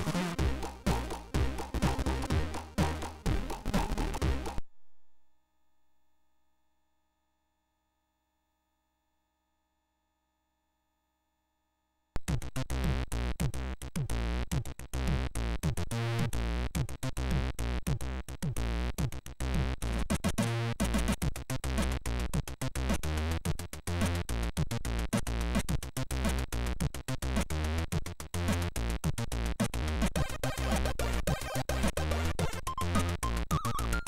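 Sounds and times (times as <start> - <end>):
fast electronic chiptune: 0.0 - 4.6, 27.6 - 34.0
heavy bass line: 0.0 - 4.6.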